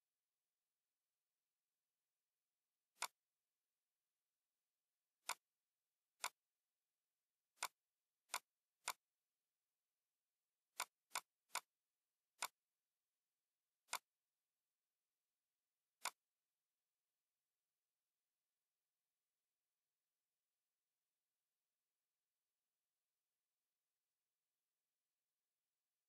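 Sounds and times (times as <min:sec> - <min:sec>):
computer mouse clicking: 0:03.0 - 0:03.2, 0:05.2 - 0:05.5, 0:06.2 - 0:06.4, 0:07.6 - 0:09.0, 0:10.7 - 0:11.7, 0:12.4 - 0:12.6, 0:13.8 - 0:14.2, 0:16.0 - 0:16.3.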